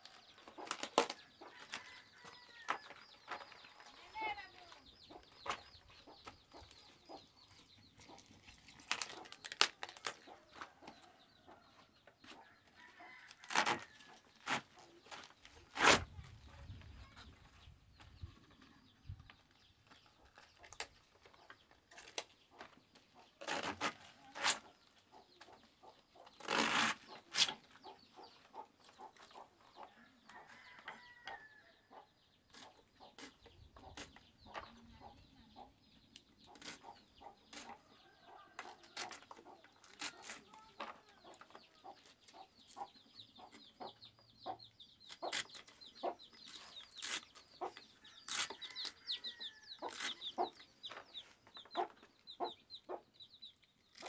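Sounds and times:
chickens clucking: 0:02.8 - 0:09.6, 0:24.0 - 0:26.4, 0:27.0 - 0:31.3, 0:31.9 - 0:54.0.

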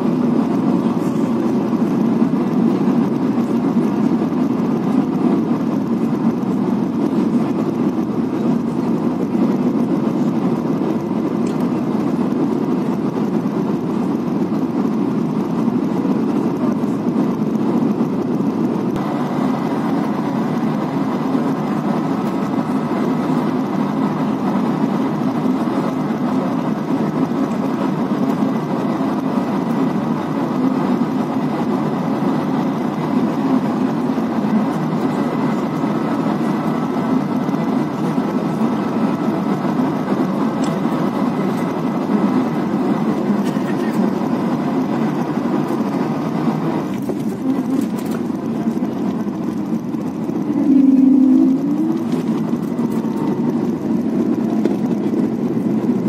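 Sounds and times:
aircraft cabin engine roar: 0:00.0 - 0:56.0
faint high tone: 0:50.6 - 0:52.1.

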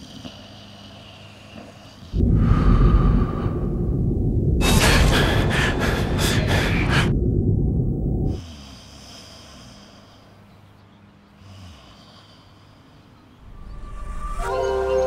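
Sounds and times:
soft breath: 0:00.0 - 0:07.2
loud rushing whoosh: 0:02.1 - 0:08.4, 0:13.4 - 0:15.0
deep rumble: 0:02.1 - 0:08.5, 0:13.4 - 0:15.0.

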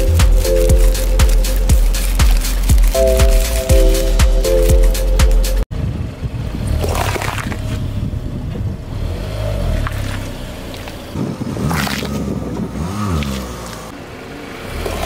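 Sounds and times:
tyre crushing peppers: 0:00.0 - 0:05.4
car rolling on asphalt: 0:05.8 - 0:15.0.

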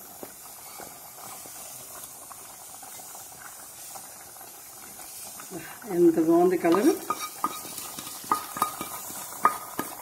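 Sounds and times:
hot oil hissing: 0:00.0 - 0:10.0
wooden spatula scraping pan: 0:06.7 - 0:10.0.

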